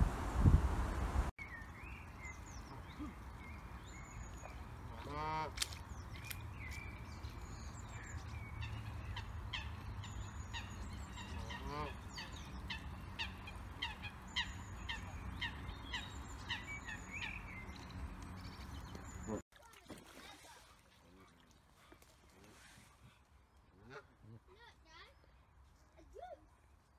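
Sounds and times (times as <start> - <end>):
small birds chirping: 1.4 - 19.4
goose honking: 11.2 - 12.3.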